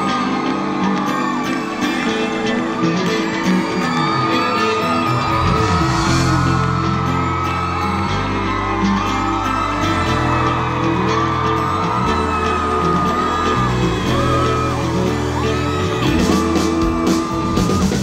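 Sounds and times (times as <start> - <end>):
crowd whooping and yelling: 0.0 - 18.0
live pop-rock band: 0.0 - 18.0
bass notes: 5.2 - 18.0.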